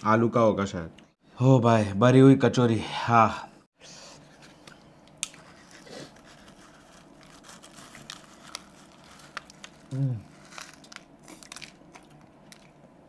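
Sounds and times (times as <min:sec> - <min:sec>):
soft eating sounds: 0:04.2 - 0:13.0
crisp food crunching: 0:05.2 - 0:12.9.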